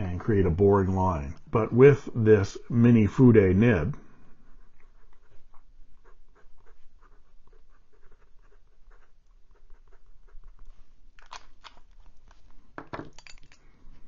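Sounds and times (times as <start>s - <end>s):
fountain pen scratching on paper: 4.3s - 10.6s.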